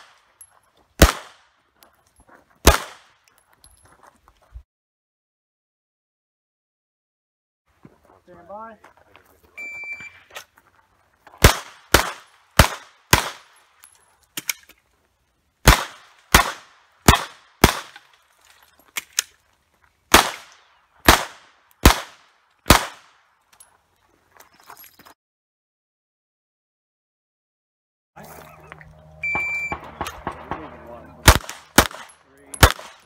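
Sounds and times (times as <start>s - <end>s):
pistol shots: 1.0s - 1.5s, 2.6s - 3.1s, 11.4s - 13.6s, 15.6s - 18.1s, 20.1s - 23.2s, 29.2s - 33.0s.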